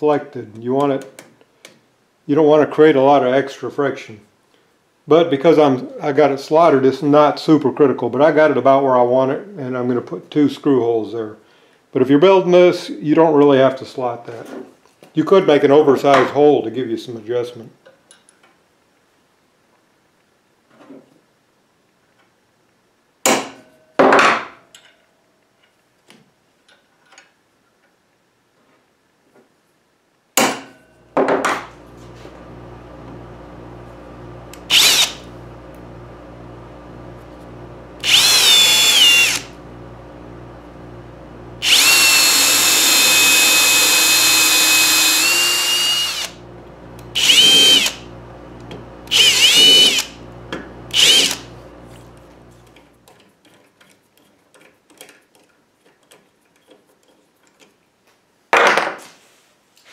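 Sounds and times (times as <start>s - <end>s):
low steady hum: 30.8s - 53.0s
cordless drill drilling metal: 34.5s - 35.3s, 38.0s - 39.6s, 41.6s - 52.3s.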